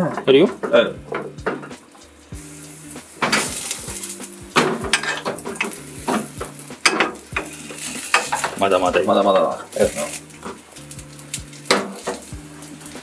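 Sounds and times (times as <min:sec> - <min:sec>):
utensils clattering on frying pan: 0:00.0 - 0:02.2, 0:03.0 - 0:13.0
background music: 0:00.0 - 0:13.0
light sizzling: 0:00.0 - 0:13.0.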